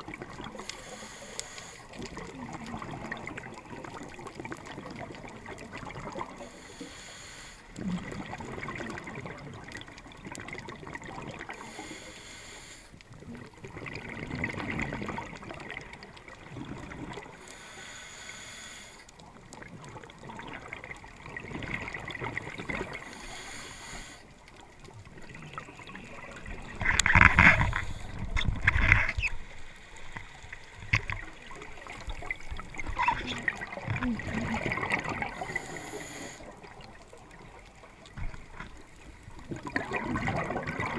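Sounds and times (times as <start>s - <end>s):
underwater bubbling: 0.0s - 40.9s
regulator air hiss: 0.7s - 1.8s, 6.5s - 7.6s, 11.7s - 12.9s, 17.4s - 19.0s, 23.1s - 24.2s, 35.4s - 36.5s.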